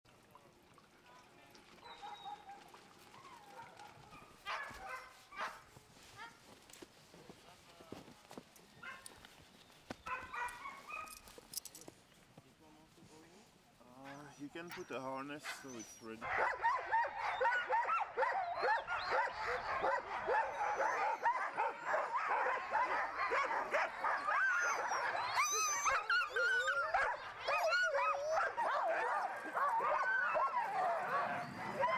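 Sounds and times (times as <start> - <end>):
dogs barking and yipping: 1.8 - 6.3, 8.8 - 9.2, 10.0 - 11.4, 14.0 - 31.9
huskies yelping and howling: 14.1 - 31.9.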